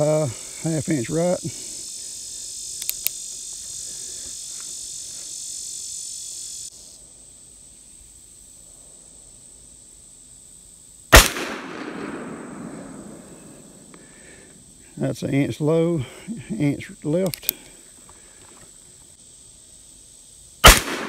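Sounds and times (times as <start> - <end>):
high insect buzz: 0.0 - 21.0
revolver gunshot with echo: 11.1 - 13.3, 20.6 - 21.0.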